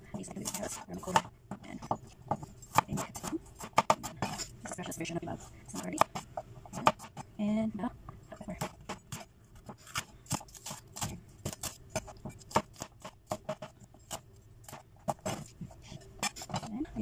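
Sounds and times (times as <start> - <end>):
knife chopping on cutting board: 0.3 - 4.5, 5.8 - 7.2, 8.5 - 15.5.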